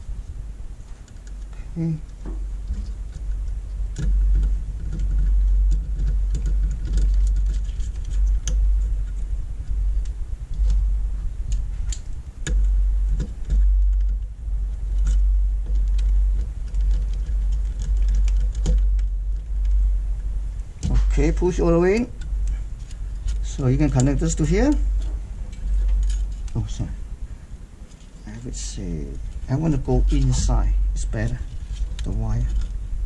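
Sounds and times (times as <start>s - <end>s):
low rumble: 0.0s - 33.0s
screwdriver and small parts clicking: 21.9s - 26.7s.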